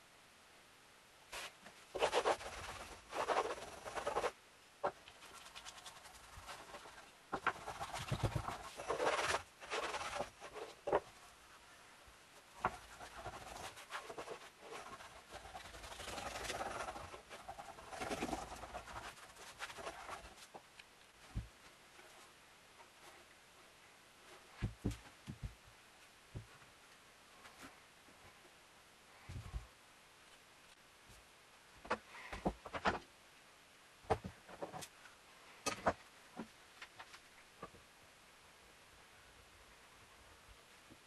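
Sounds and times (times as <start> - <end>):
veneer sheet rustling: 1.3 - 11.2
wooden block rubbing on veneer: 1.4 - 11.1, 12.6 - 20.4.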